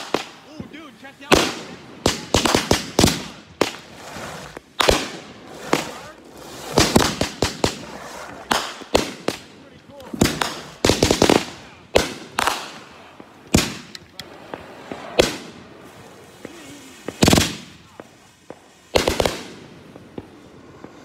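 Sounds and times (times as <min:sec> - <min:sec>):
fireworks bangs: 0:00.0 - 0:21.0
fireworks crackling: 0:00.0 - 0:21.0.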